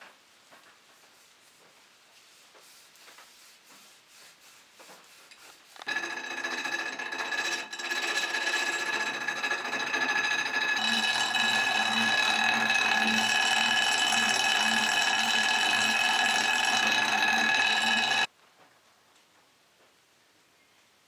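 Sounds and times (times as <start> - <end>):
hand rubbing wood: 2.2 - 18.3
bench grinder whining: 5.8 - 18.3.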